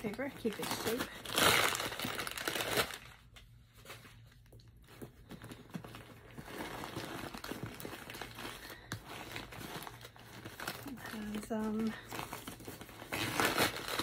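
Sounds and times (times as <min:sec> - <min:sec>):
packing paper crinkling: 0:00.0 - 0:14.0.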